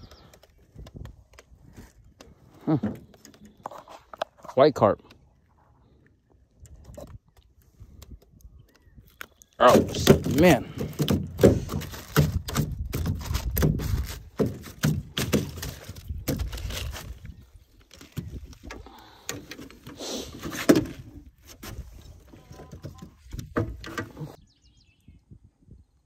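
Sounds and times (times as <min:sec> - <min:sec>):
plastic bag handling: 0:09.8 - 0:18.7.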